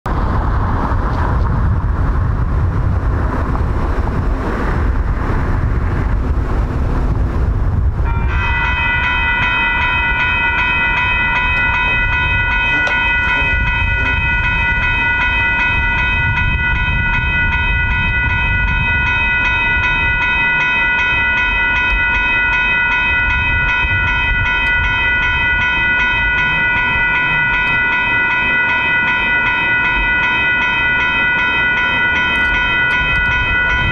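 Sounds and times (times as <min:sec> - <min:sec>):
low road noise rumble: 0:00.1 - 0:33.9
railroad crossing bell ringing: 0:08.0 - 0:33.9.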